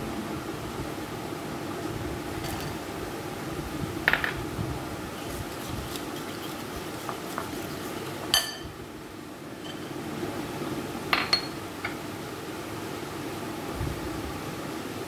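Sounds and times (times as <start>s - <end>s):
steady low hum: 0.0s - 15.0s
whisk clinking against ceramic bowl: 5.6s - 8.7s.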